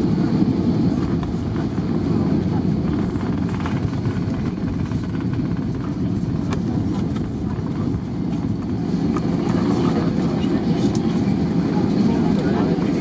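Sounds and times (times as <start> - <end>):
aircraft cabin rumble: 0.0 - 13.0.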